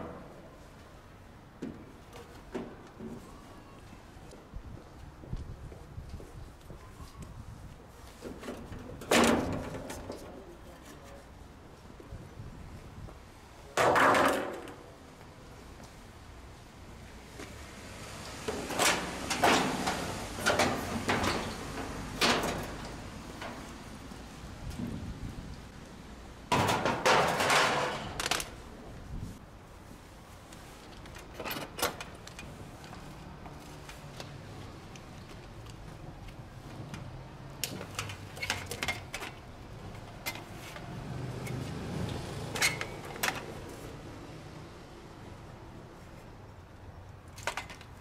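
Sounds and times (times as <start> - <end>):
sheet metal panel clanking and rattling: 26.5 - 28.2.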